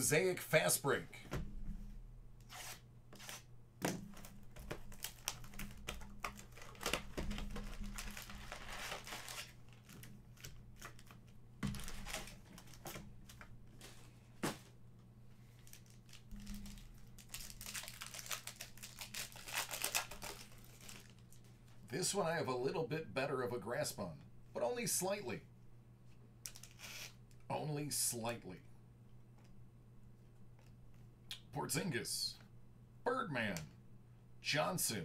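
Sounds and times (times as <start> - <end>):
plastic wrapping tearing and crinkling: 4.1 - 13.4, 15.6 - 21.4.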